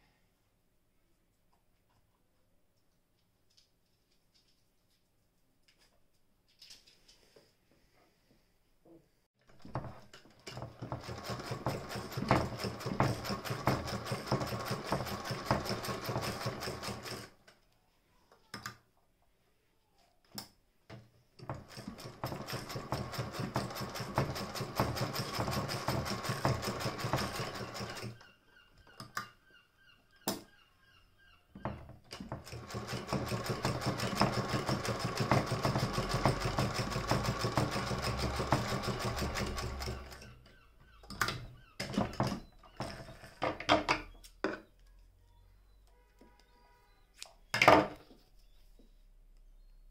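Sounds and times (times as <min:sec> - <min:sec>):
sewing machine clicking: 0:09.7 - 0:17.4, 0:21.4 - 0:28.2, 0:32.1 - 0:40.4.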